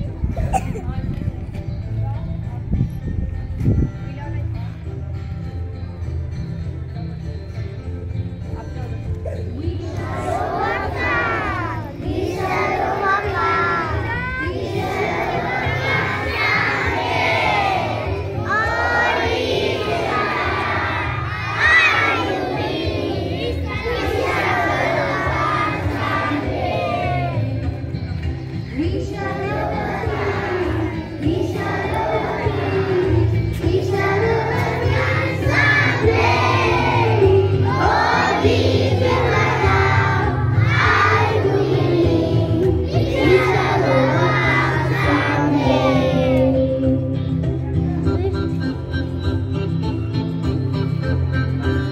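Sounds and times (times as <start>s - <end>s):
children chanting in unison: 9.9s - 27.5s, 29.2s - 46.3s.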